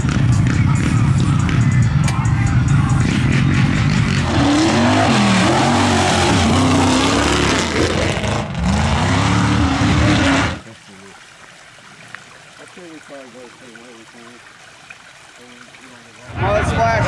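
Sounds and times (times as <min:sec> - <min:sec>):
truck engine revving: 0:00.0 - 0:10.7
tyre and mud noise: 0:02.9 - 0:11.2.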